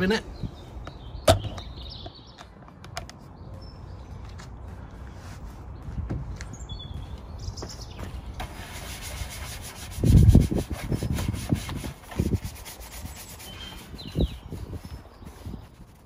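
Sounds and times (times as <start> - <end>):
brush scrubbing: 8.4 - 16.0.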